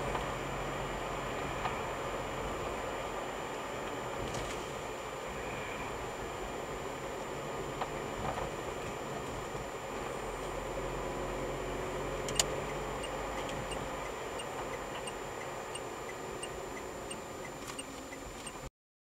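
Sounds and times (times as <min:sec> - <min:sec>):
car road and engine noise: 0:00.0 - 0:18.7
turn signal ticking: 0:12.2 - 0:18.7
sharp click: 0:12.3 - 0:12.6.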